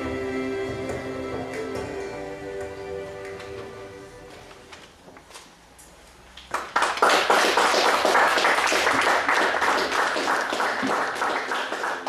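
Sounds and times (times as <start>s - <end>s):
music: 0.0s - 4.7s
audience applauding: 6.5s - 12.0s.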